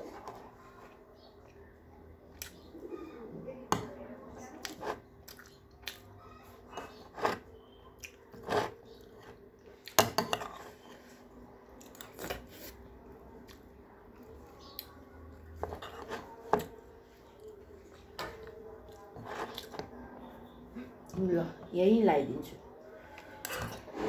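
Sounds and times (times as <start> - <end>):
chewing: 4.6 - 7.4, 8.0 - 20.3
spoon scraping a ceramic plate: 6.7 - 7.6, 8.3 - 9.4, 10.0 - 11.1, 15.6 - 16.7.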